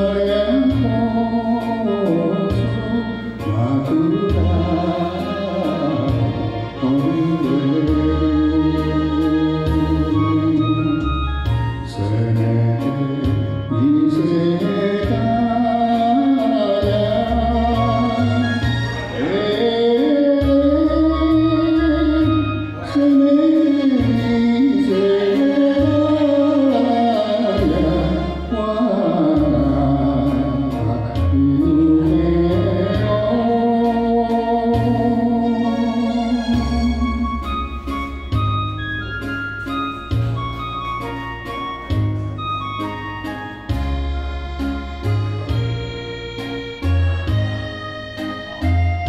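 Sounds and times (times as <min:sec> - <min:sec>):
person singing: 0:00.0 - 0:38.4
instrumental accompaniment: 0:00.0 - 0:49.0.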